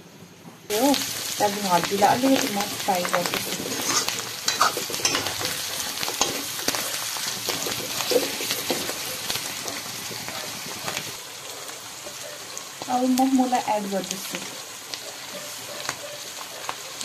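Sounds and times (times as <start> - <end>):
food sizzling in a wok: 0.7 - 17.0
metal ladle scraping a pan: 3.4 - 9.4.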